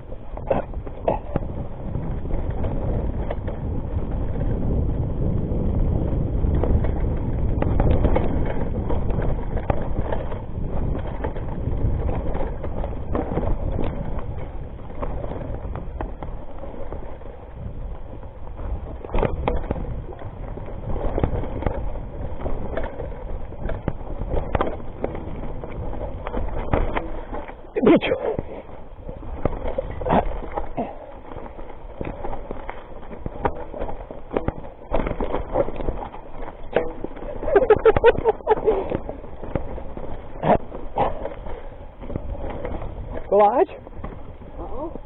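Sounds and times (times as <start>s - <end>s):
bike knocks and rattles: 0.0s - 45.0s
bike tyre noise: 0.0s - 45.0s
wind on microphone: 0.0s - 45.0s.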